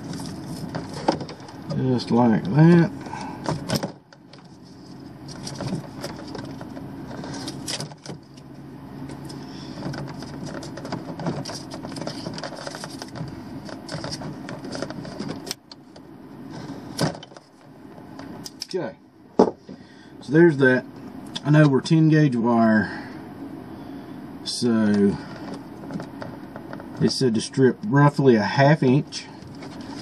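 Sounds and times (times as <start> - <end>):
hands handling electrical cable: 0.0 - 1.8, 3.0 - 18.7, 25.2 - 27.0, 29.4 - 30.0
irregular clicks taps and rustles: 3.4 - 8.5, 9.1 - 18.8, 25.3 - 27.1.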